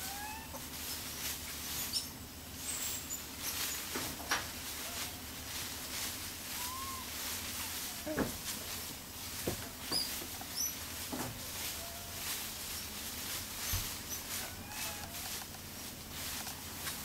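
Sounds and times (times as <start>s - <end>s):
steady low hum: 0.0s - 17.0s
animal chirps and squeaks: 1.8s - 3.9s, 6.6s - 8.2s, 9.9s - 10.8s, 13.6s - 15.2s.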